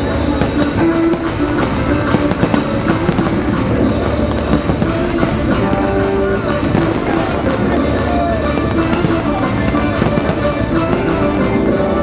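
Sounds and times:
fireworks bangs and crackles: 0.0 - 12.0
loud music: 0.0 - 12.0.

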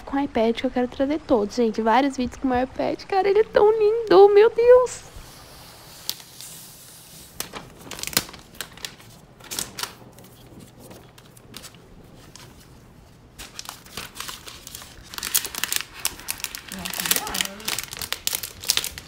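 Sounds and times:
plastic wrap crinkling: 5.2 - 19.0.

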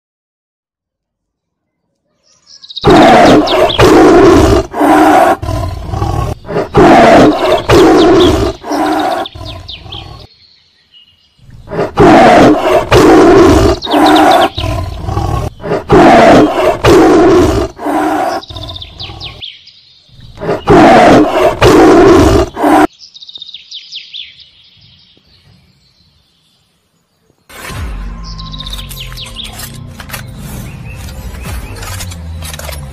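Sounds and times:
faint bird chirping: 1.2 - 27.5
animal roaring: 2.8 - 10.3, 11.5 - 19.4, 20.2 - 22.9.

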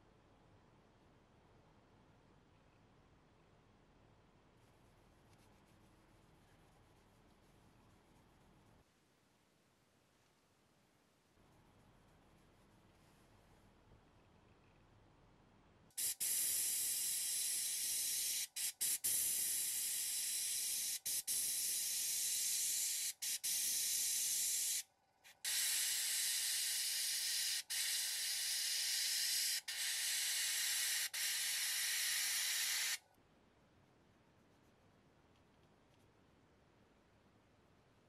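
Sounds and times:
airbrush hissing: 16.0 - 33.0.

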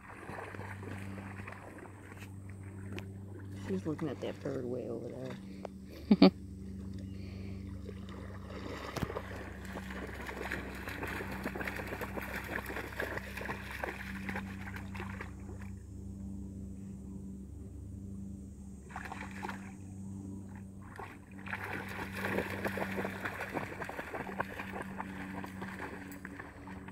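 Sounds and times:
dog splashing in shallow water: 0.0 - 5.4, 7.8 - 15.7, 18.9 - 19.8, 20.5 - 26.9
steady low hum: 0.0 - 26.9.

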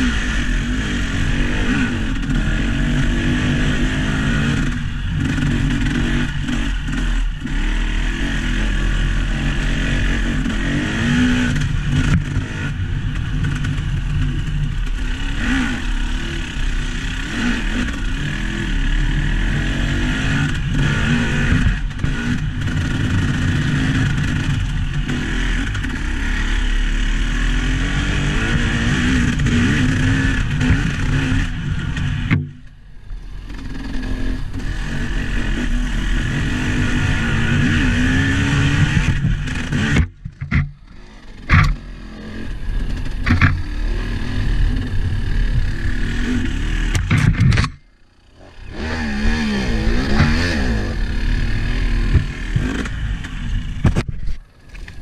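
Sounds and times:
engine revving: 0.0 - 55.0
knocks and rattles: 46.9 - 47.8.

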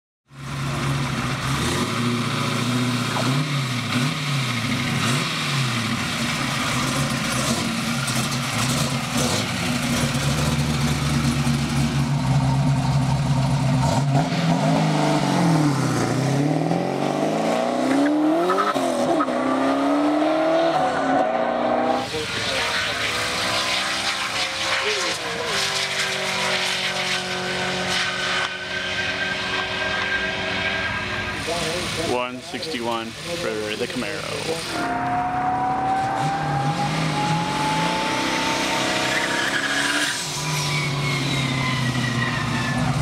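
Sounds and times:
car engine idling and revving: 0.3 - 43.0
car accelerating through gears: 13.8 - 32.2, 33.8 - 43.0.

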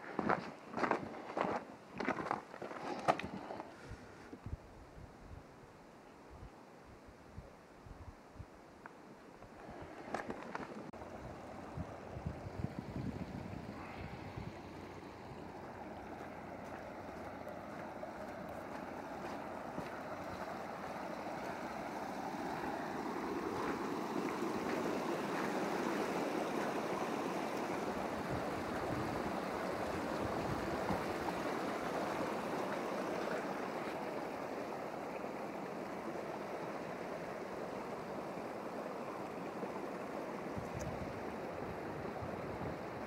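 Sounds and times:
floodwater streaming over gravel: 0.1 - 3.8, 9.6 - 43.0
swollen creek rushing: 9.6 - 43.0.

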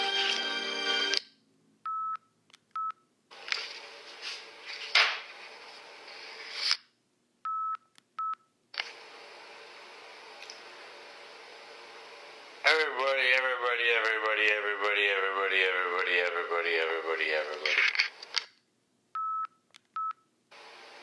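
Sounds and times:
tape hiss: 0.0 - 1.2, 8.7 - 18.4.

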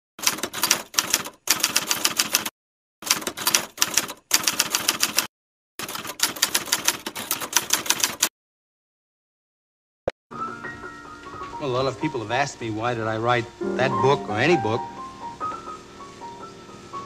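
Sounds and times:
typewriter keys clacking: 0.2 - 8.3.

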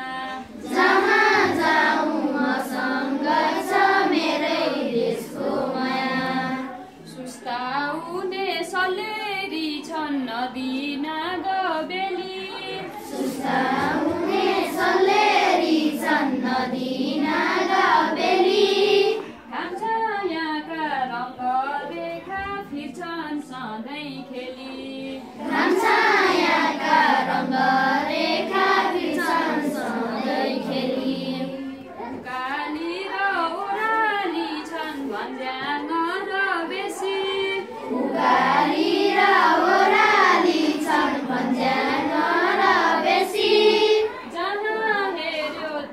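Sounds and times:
children singing together: 0.0 - 7.8, 12.1 - 19.6, 24.6 - 45.6.

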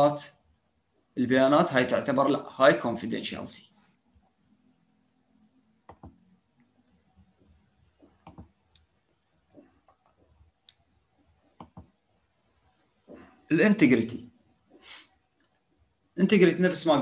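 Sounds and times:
computer mouse clicking: 5.8 - 6.7, 7.4 - 10.9, 11.5 - 12.0.

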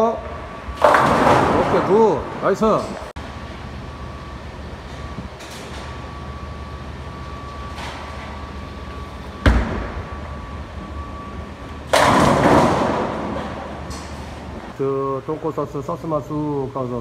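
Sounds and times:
bowling pins crashing: 0.7 - 2.5, 11.9 - 13.9.

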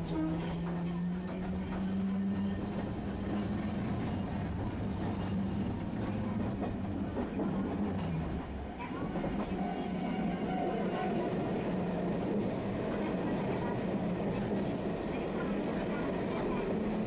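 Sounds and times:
high wheel squeal: 0.3 - 4.2.

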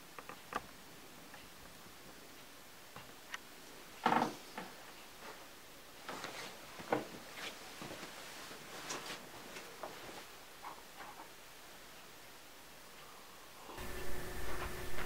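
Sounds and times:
soft footsteps: 4.4 - 11.4.

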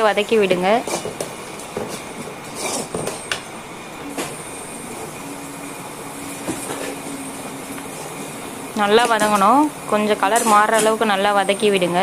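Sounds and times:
onions frying in oil: 3.8 - 12.0.

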